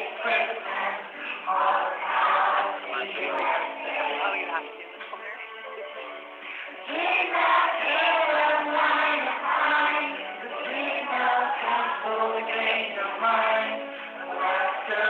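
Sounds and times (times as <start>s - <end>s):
musical accompaniment: 0.0s - 15.0s.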